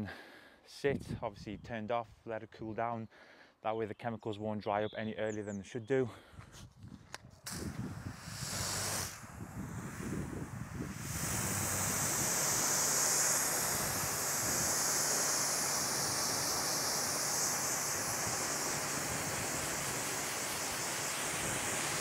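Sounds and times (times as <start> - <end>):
pressure washer spray hissing: 7.5 - 22.0.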